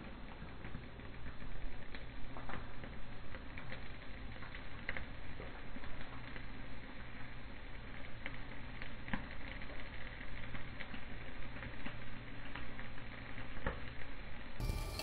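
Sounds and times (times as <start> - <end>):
stove flames hissing and crackling: 0.0 - 15.0
faint music: 14.6 - 15.0.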